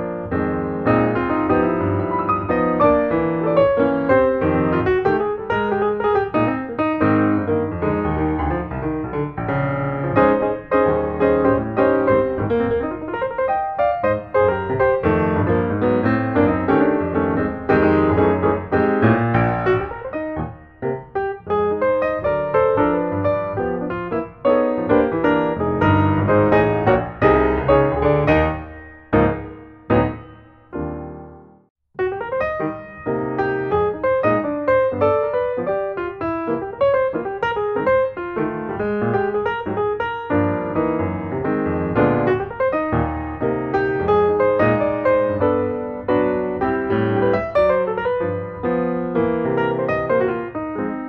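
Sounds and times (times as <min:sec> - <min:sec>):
flowing piano music: 0:00.0 - 0:51.0.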